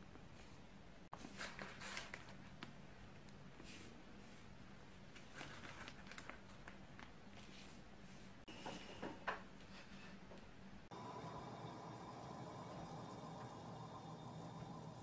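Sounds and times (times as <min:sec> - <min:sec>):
room hum: 0:06.3 - 0:15.0.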